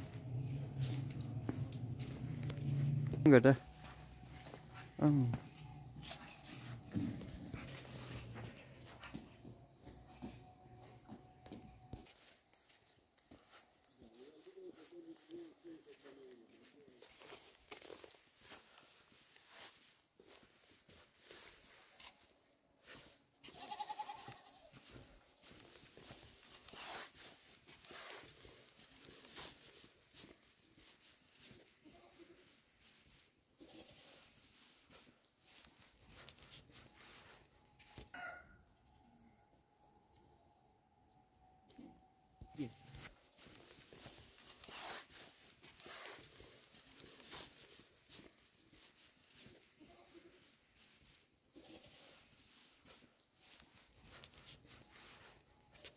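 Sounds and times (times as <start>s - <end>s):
farm animal bleating: 23.3s - 25.0s, 33.5s - 34.5s, 51.5s - 52.5s.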